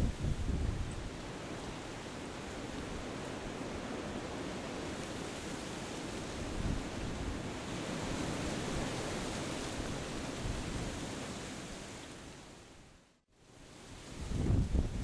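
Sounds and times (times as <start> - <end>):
wind buffeting microphone: 0.0 - 1.2, 14.2 - 15.0.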